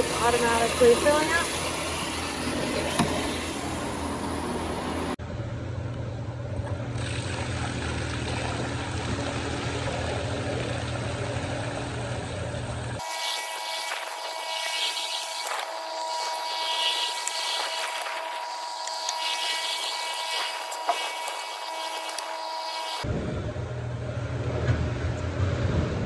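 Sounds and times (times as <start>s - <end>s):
low mechanical hum: 0.0s - 26.0s
thin steady tones: 13.0s - 23.0s
noise haze: 13.0s - 23.1s.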